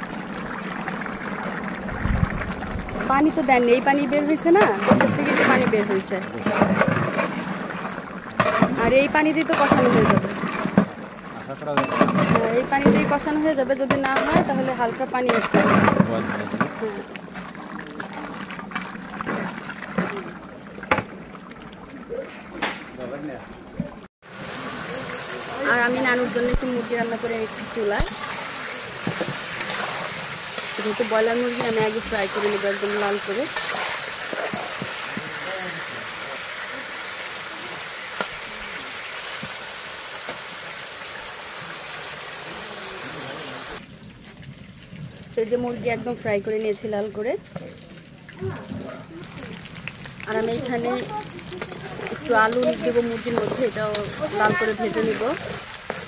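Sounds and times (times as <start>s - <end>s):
meat simmering bubbling: 0.0s - 42.3s, 43.7s - 56.0s
chicken sizzling in oil: 24.2s - 48.5s, 49.1s - 56.0s.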